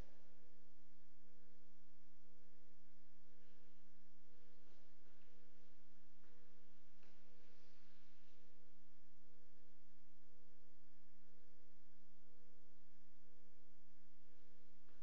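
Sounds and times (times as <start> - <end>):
low electrical hum: 0.0 - 15.0.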